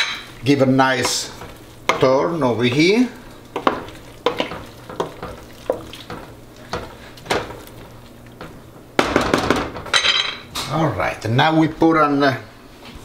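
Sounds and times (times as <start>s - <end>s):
spoon stirring pasta in a pot: 0.4s - 9.0s
spoon knocking against a pot: 3.6s - 7.6s.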